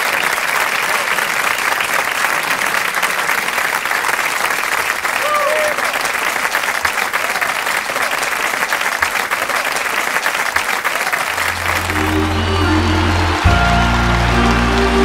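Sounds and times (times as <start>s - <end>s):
audience applauding: 0.0s - 15.0s
band playing: 11.4s - 15.0s.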